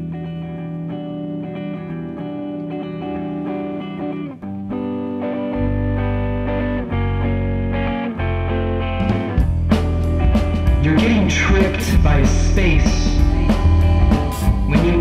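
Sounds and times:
electric guitar chords: 0:00.0 - 0:15.0
deep bass notes: 0:09.0 - 0:15.0.

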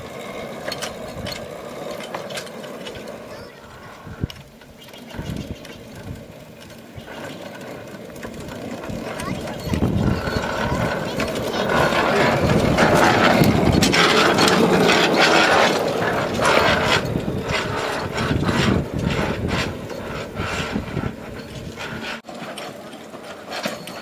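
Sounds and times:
handcar clattering on rails: 0:00.0 - 0:24.0.

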